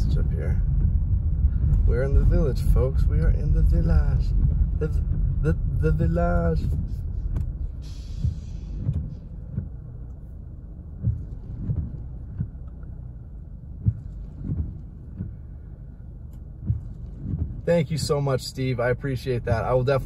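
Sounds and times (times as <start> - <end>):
engine and tyre rumble: 0.0 - 20.0
short hiss: 7.6 - 9.4.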